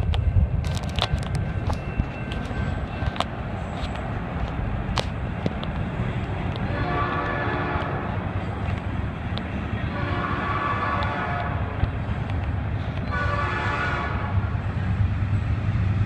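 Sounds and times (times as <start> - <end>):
train low rumble: 0.0 - 16.0
locomotive air horn blasts: 6.6 - 8.1, 9.9 - 11.7, 13.1 - 14.4.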